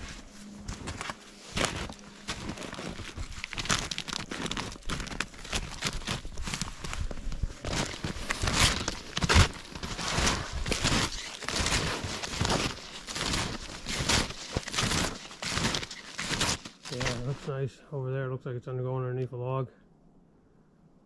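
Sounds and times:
footsteps crunching in snow: 0.0s - 17.6s
snowshoe steps crunching: 0.0s - 17.6s
snowshoe bindings clicking: 1.6s - 17.4s.

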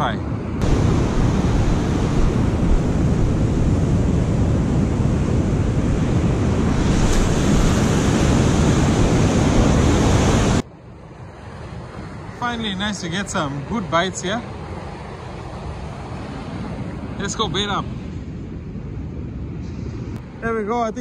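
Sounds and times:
wind buffeting microphone: 0.0s - 21.0s
surf breaking on beach: 0.6s - 10.6s.

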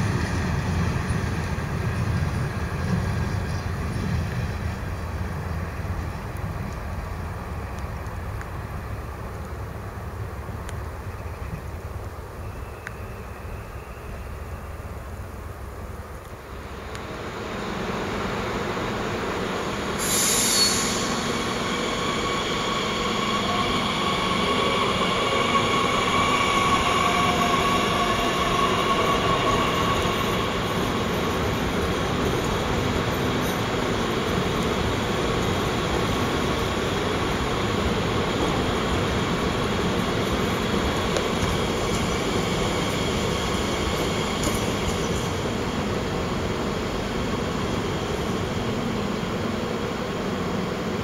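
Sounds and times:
electric train high whine and squeal: 0.0s - 51.0s
train rumble: 0.0s - 51.0s
short hiss: 20.0s - 21.6s.

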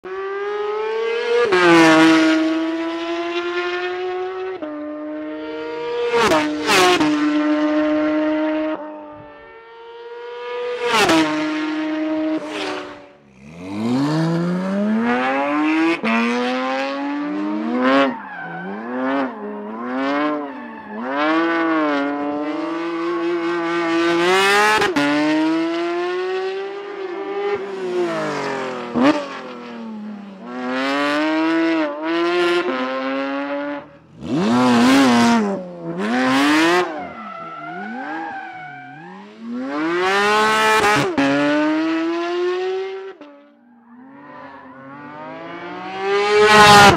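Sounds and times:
car engine revving: 10.2s - 46.9s
tyre squeal: 17.9s - 21.7s, 36.4s - 39.7s.

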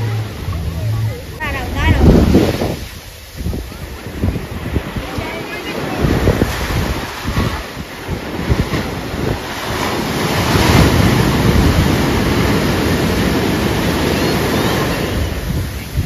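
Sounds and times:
waves breaking on beach: 0.0s - 16.0s
wind buffeting microphone: 0.0s - 16.0s.

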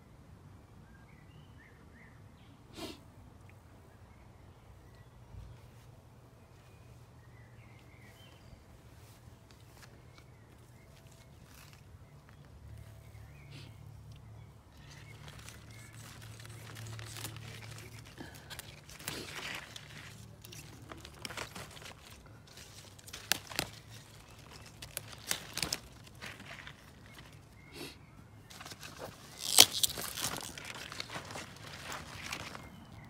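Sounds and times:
leaves rustling and stems snapping: 9.5s - 13.0s, 14.1s - 27.6s, 28.5s - 33.0s.

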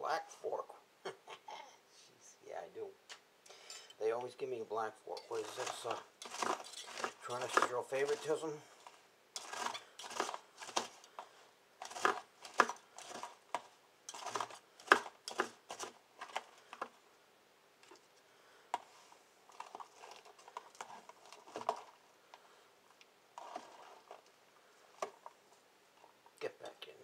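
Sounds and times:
knife cutting lettuce: 5.3s - 8.4s, 9.4s - 11.0s, 11.8s - 16.4s.

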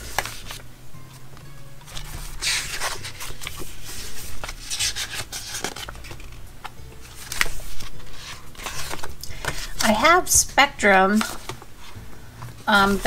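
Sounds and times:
paper sheets rustling: 0.0s - 10.1s, 10.9s - 13.0s.

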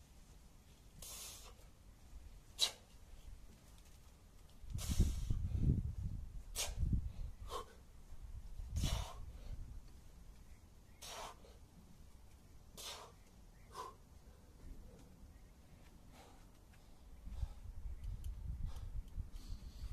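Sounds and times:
man's sharp hissing exhalations: 1.0s - 1.6s, 2.6s - 2.9s, 4.7s - 5.5s, 6.5s - 6.9s, 8.8s - 9.4s, 12.8s - 14.0s.

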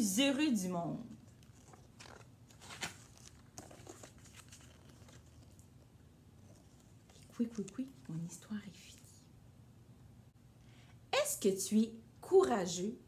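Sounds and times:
low room hum: 0.0s - 13.0s
paper pages rustling: 1.2s - 5.8s.

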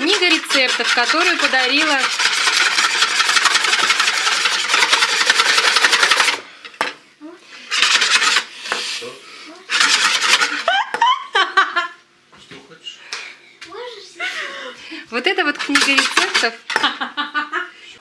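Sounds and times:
whisk beating batter in bowl: 0.0s - 6.4s, 7.6s - 8.8s, 9.7s - 10.7s, 15.2s - 16.8s.

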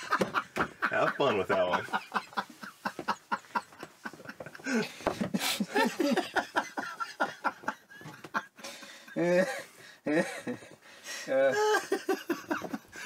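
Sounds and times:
people laughing along: 0.0s - 8.6s, 11.5s - 13.0s
man laughing heartily: 0.0s - 13.0s.

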